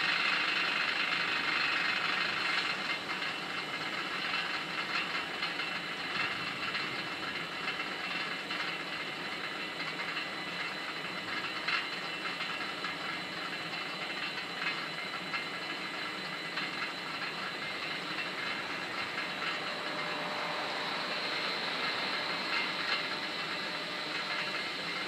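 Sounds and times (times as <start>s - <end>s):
electric train hiss and rumble: 15.6s - 25.0s.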